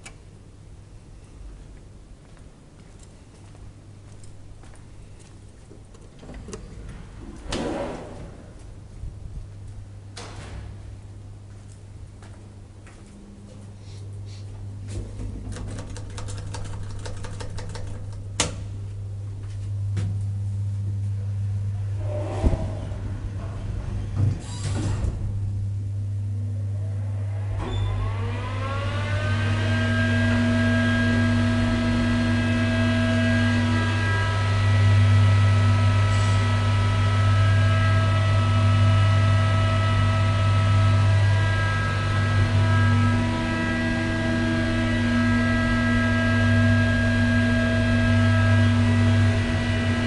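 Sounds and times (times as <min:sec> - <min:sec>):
low machinery hum: 0:00.0 - 0:50.0
elevator machinery clicking: 0:15.3 - 0:18.6.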